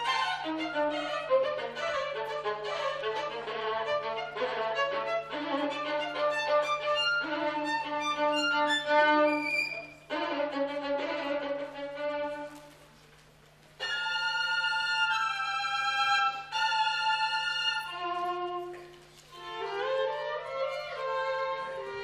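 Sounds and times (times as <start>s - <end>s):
solo violin playing: 0.0s - 12.7s, 13.8s - 22.0s.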